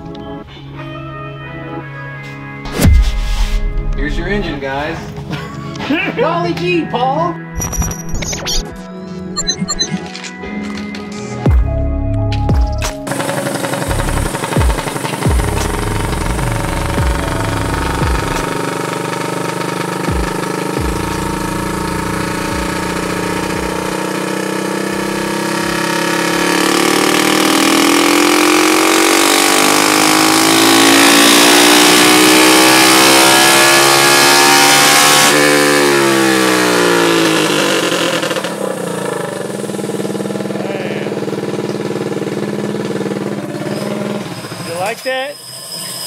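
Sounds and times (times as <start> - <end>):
go-kart engine revving: 13.1 - 45.1.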